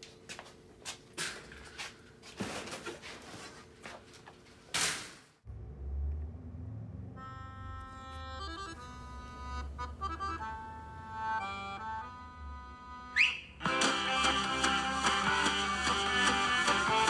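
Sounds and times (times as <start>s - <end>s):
low bass music: 5.5s - 17.0s
held chords: 7.0s - 17.0s.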